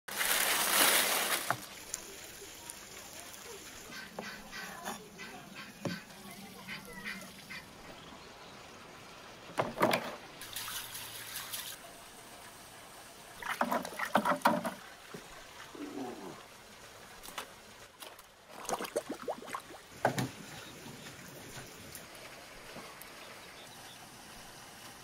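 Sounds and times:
clattering and splashing: 0.1s - 2.1s, 9.4s - 11.8s, 13.4s - 15.9s, 17.1s - 23.0s
salt pouring into plastic basin: 0.1s - 3.3s.

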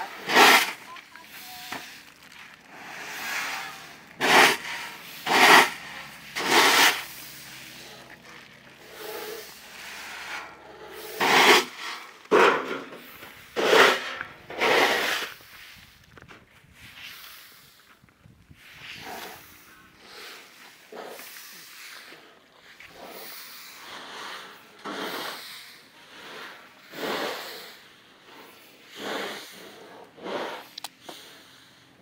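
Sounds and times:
scoop scraping through corn kernels: 0.0s - 16.0s.

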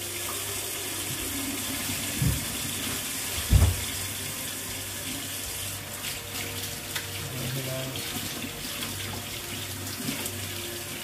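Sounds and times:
tap running into a sink: 0.0s - 4.2s.

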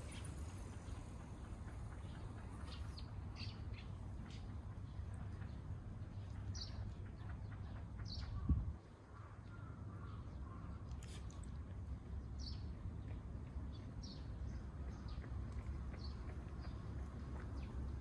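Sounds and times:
low wind rumble: 0.0s - 10.8s.

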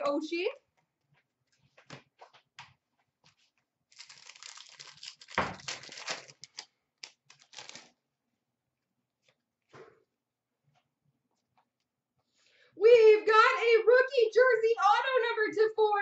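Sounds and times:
cards rustling: 3.9s - 8.0s
foil wrapper crinkling and tearing: 3.9s - 8.0s.

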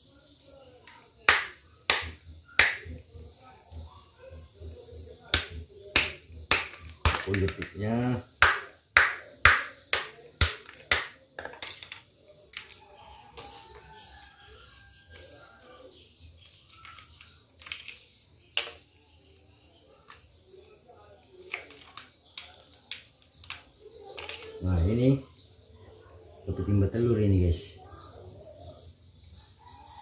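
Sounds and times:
knife striking crab shell: 5.3s - 7.6s, 8.4s - 11.7s
crab shell snapping apart: 21.5s - 23.6s.

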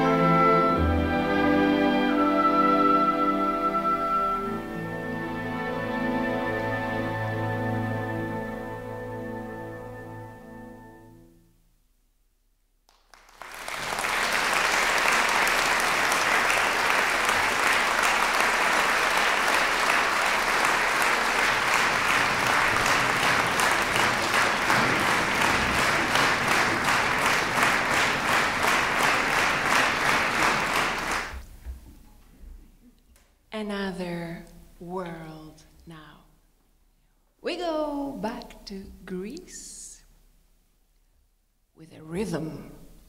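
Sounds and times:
audience applauding: 12.9s - 31.5s.

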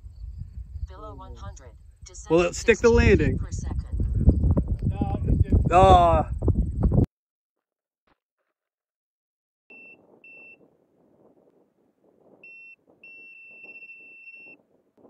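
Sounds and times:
faint wind noise: 0.0s - 7.1s, 9.7s - 15.0s
high-pitched beeps: 12.4s - 14.6s.

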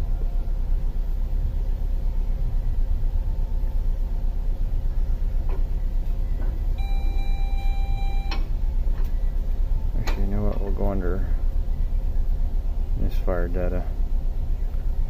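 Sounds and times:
car engine idling: 0.0s - 15.0s
steady electronic tone: 6.7s - 8.8s.

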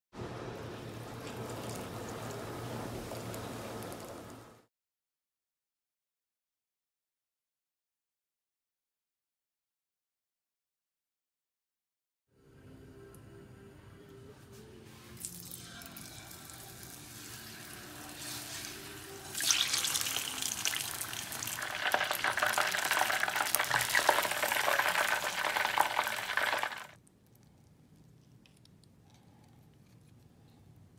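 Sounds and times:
fish sizzling in deep-frying oil: 15.4s - 27.0s.

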